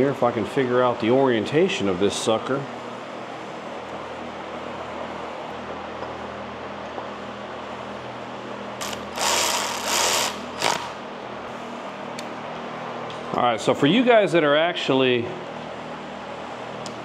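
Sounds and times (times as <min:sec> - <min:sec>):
low background hum: 0:00.0 - 0:17.0
ratchet clicking: 0:08.8 - 0:11.0.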